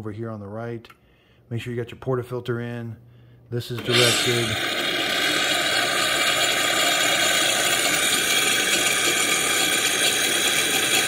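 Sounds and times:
espresso machine pump running: 3.8s - 11.0s
steam hissing: 3.8s - 11.0s.

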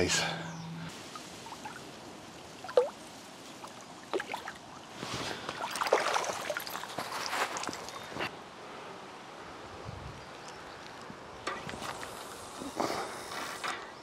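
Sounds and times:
lake water splashing: 1.0s - 8.1s.

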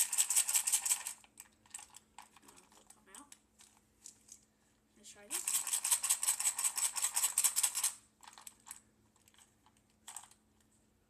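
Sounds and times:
sinkers rattling in a container: 0.0s - 3.0s, 5.3s - 9.4s.

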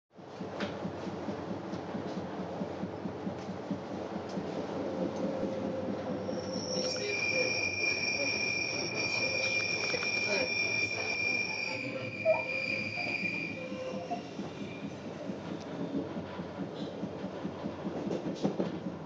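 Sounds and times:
train rumbling on track: 0.2s - 19.0s
high-pitched wheel squeal: 6.2s - 15.1s.

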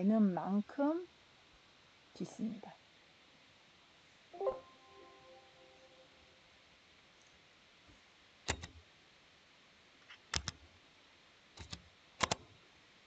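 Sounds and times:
computer mouse clicking: 8.5s - 8.8s, 10.1s - 10.6s, 11.6s - 12.5s.

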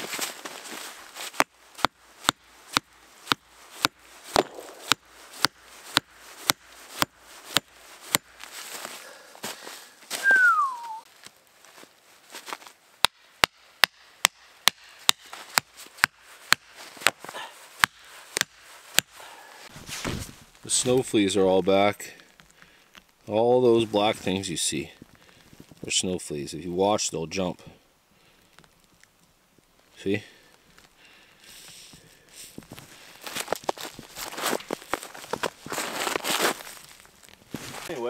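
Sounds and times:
rustle: 0.0s - 38.0s
axe striking wood: 1.3s - 8.3s, 13.0s - 17.2s, 17.8s - 19.2s
falling whistle-like note: 10.2s - 11.0s.

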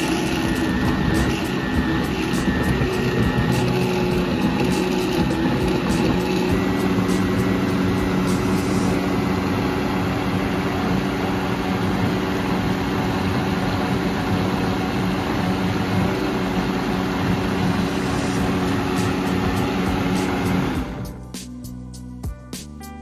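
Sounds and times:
blender running: 0.0s - 21.1s.

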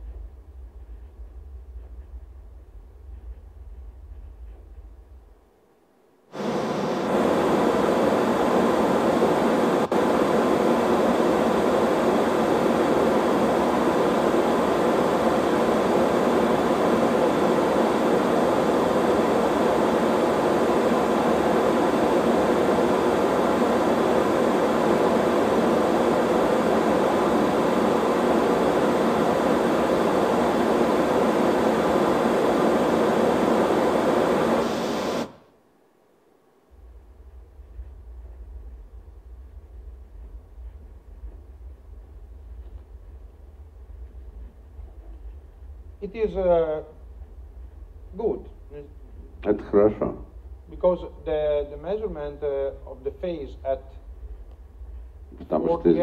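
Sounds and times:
pink noise through loudspeakers: 6.3s - 35.5s, 36.4s - 56.0s.

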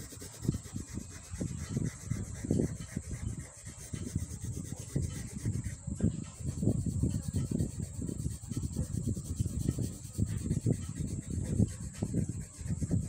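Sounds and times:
pencil shading on paper: 0.0s - 13.0s.

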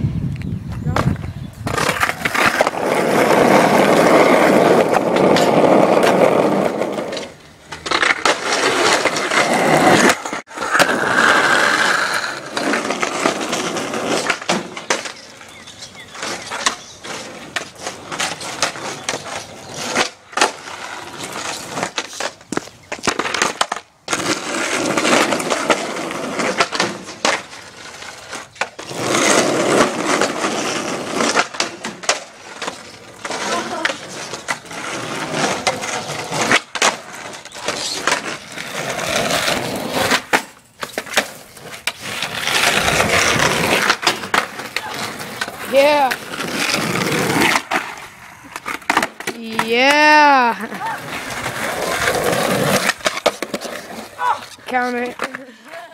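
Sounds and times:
skateboard wheels rolling on concrete: 0.0s - 55.9s
skateboard clacking on ground: 0.8s - 55.9s.

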